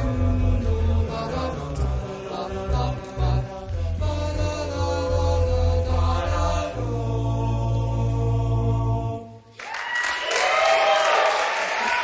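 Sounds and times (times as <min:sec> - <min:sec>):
male a cappella group singing: 0:00.0 - 0:09.5
applause: 0:09.5 - 0:12.0.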